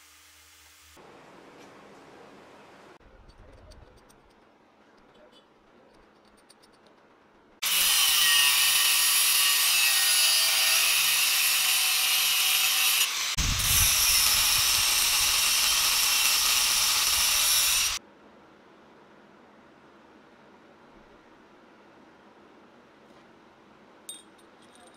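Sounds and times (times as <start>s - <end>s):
angle grinder cutting steel: 7.6s - 18.0s.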